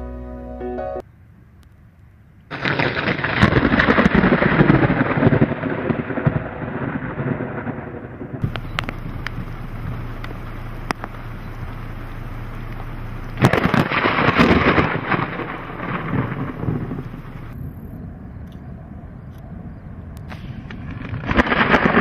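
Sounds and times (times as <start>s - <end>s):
rain hissing: 2.5s - 6.2s, 8.4s - 17.9s, 20.3s - 22.0s
thunder crack and rumble: 2.5s - 22.0s.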